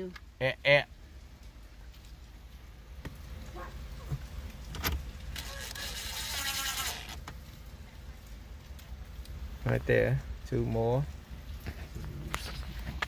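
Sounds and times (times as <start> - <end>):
cordless drill motor whining: 5.4 - 7.2.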